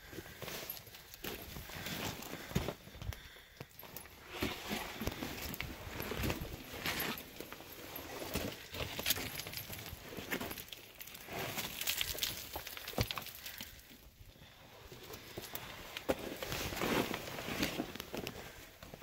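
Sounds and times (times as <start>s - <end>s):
footsteps crunching on loose rock: 0.3s - 14.0s
stones clinking together: 8.6s - 14.0s.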